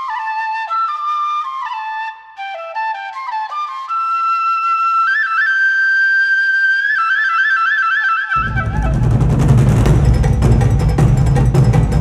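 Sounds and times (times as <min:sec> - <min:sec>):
solo flute: 0:00.0 - 0:10.2
heavy low drums: 0:08.4 - 0:12.0.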